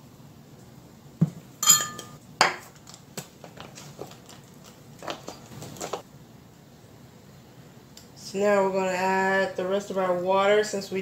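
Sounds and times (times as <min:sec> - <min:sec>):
ringing metallic clinks: 0:01.6 - 0:02.2.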